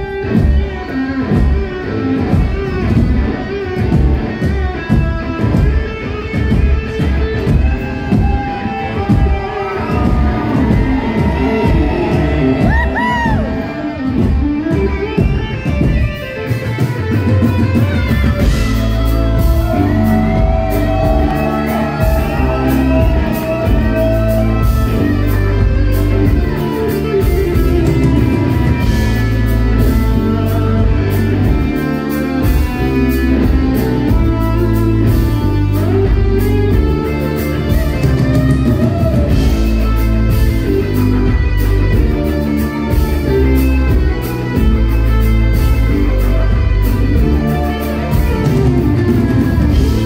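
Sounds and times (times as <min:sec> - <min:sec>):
bass guitar groove: 0:00.0 - 0:50.0
drum kit: 0:00.0 - 0:50.0
electric guitar: 0:00.0 - 0:50.0.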